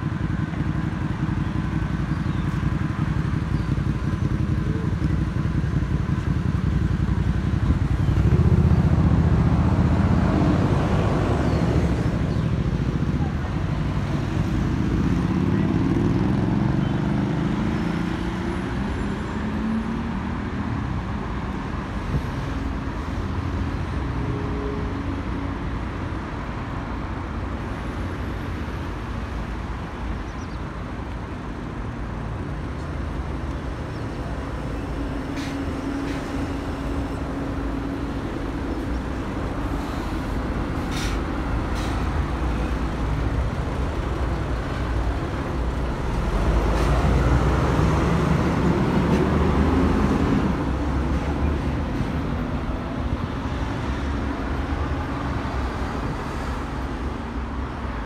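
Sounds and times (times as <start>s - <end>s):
bus engine humming: 0.0s - 58.0s
passing cars rumble: 0.0s - 58.0s
short faint hisses: 40.9s - 42.0s.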